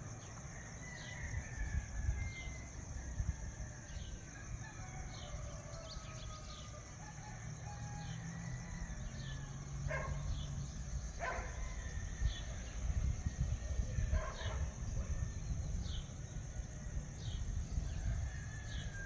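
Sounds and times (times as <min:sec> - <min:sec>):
distant traffic hum: 0:06.9 - 0:19.0.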